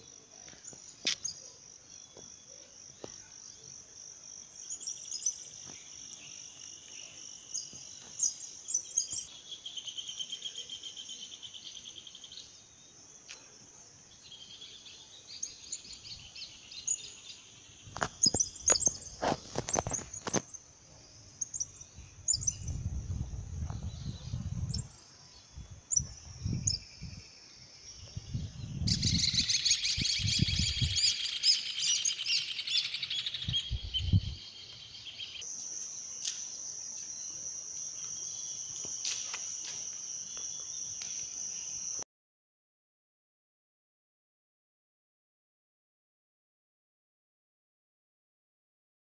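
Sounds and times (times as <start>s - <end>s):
birds chirping and singing: 4.6s - 12.6s, 14.1s - 20.6s, 21.4s - 35.4s.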